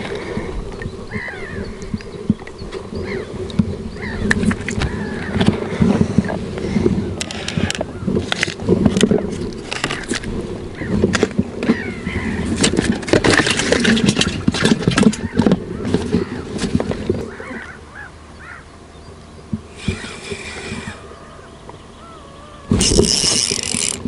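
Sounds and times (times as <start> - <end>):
clicks and knocks handling tackle: 12.6 - 17.2.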